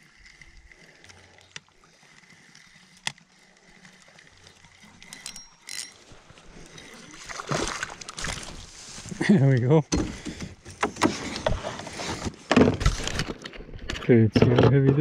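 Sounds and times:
fishing rod and reel handling: 0.0s - 9.2s
faint water noise: 0.0s - 14.1s.

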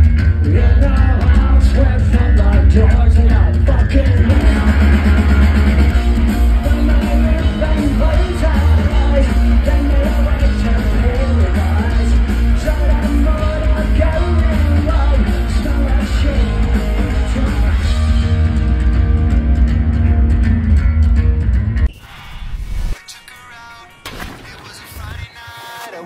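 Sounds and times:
live rock band playing: 0.0s - 21.9s
person singing: 0.4s - 18.3s.

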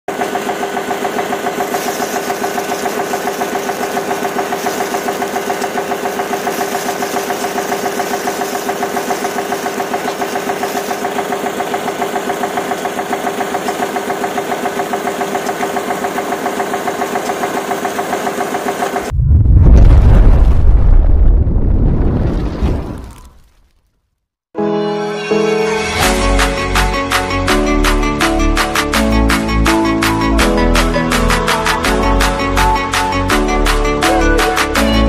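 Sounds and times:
model diesel engine chugging: 0.1s - 19.1s.

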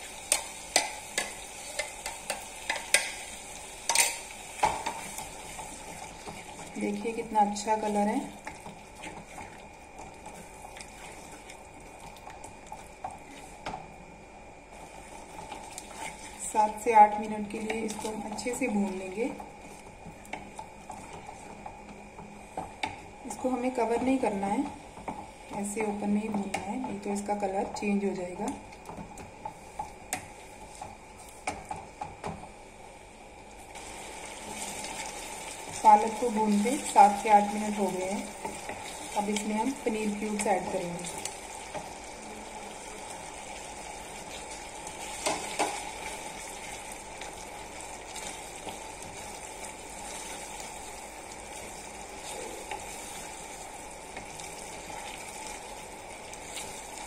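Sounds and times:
spatula tapping pan: 0.3s - 3.2s, 45.2s - 45.9s
spatula stirring thick puree: 7.8s - 13.8s
puree sizzling: 32.7s - 57.0s.

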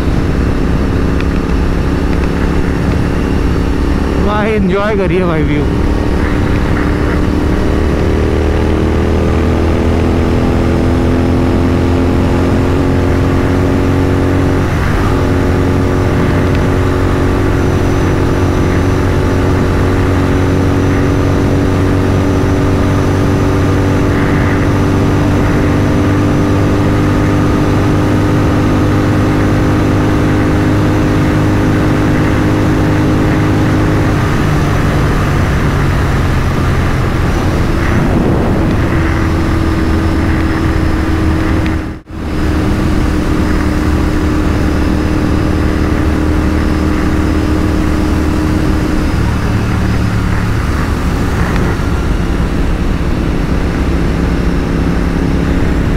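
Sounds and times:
motorcycle engine cruising: 0.0s - 55.9s.

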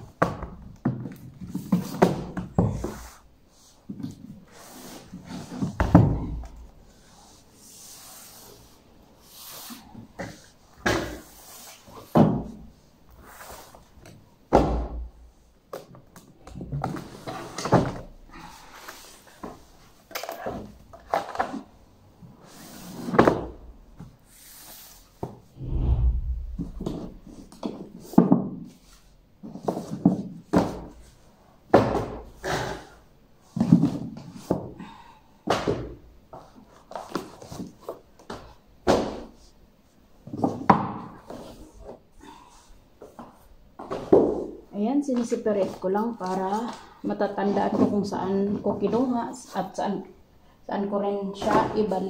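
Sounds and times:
low rumble: 25.6s - 27.3s.

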